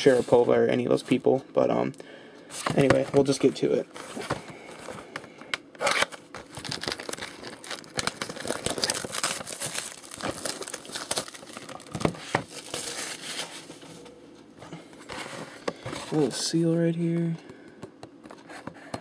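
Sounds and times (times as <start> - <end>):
plastic shrink-wrap crinkling: 5.8 - 13.8.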